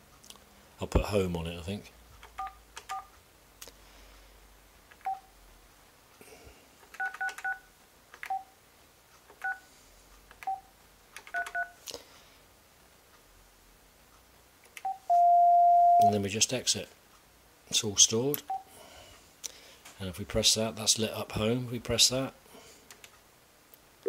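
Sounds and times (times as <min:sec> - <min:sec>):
phone keypad beeps: 0:14.8 - 0:16.1.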